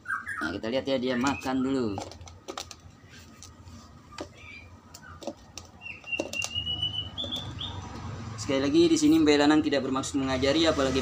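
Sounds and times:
bird whistled call: 5.8s - 7.8s.

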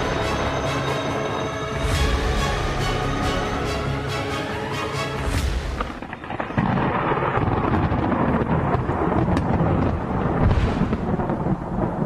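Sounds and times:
steady rain: 0.0s - 12.0s
thunder rumbling: 5.2s - 12.0s.

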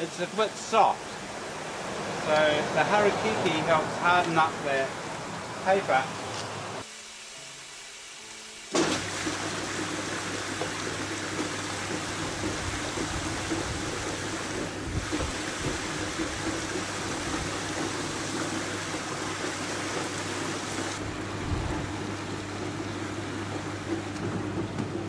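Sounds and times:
water rushing round a tub: 6.8s - 25.0s.

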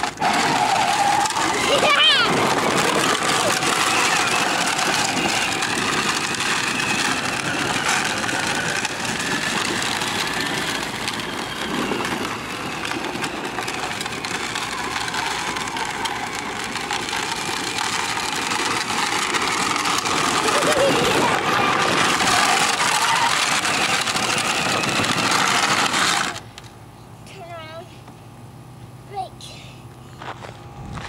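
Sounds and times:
plastic wheels rolling on dirt: 0.0s - 26.8s, 30.2s - 31.0s
electric motor and gearbox whine: 0.0s - 29.0s, 29.8s - 31.0s.

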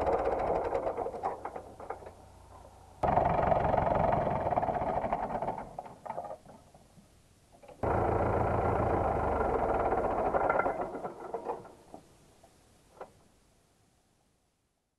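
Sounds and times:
tractor diesel engine running: 7.8s - 11.1s.

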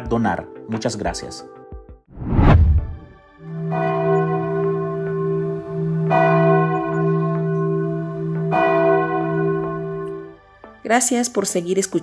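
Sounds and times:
church bells ringing: 3.5s - 10.3s.

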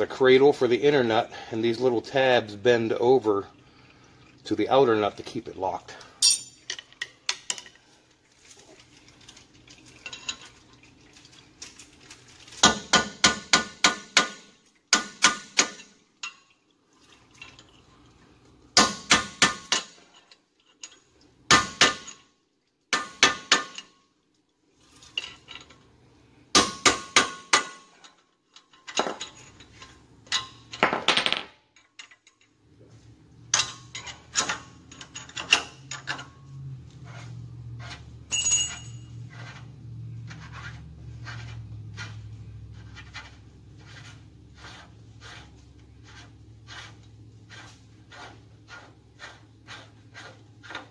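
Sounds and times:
steel tools clinking on metal: 6.2s - 6.9s, 38.3s - 39.2s.

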